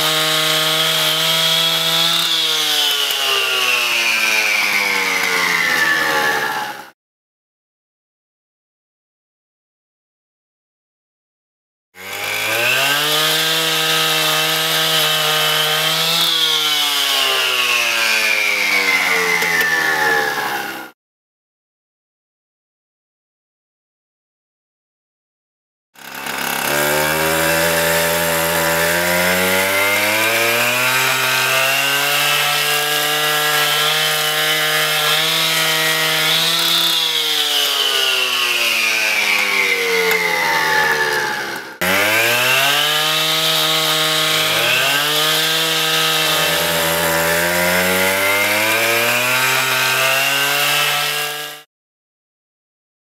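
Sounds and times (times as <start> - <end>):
cut-off saw engine: 0.0 - 6.9, 12.0 - 20.9, 26.0 - 51.7
blade grinding stone whine: 26.0 - 51.3.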